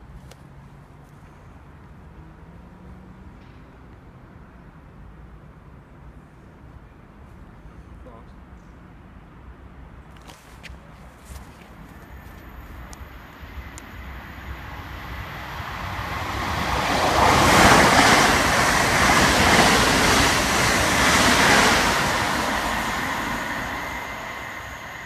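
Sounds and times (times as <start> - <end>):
passenger train rushing past: 12.0 - 25.0.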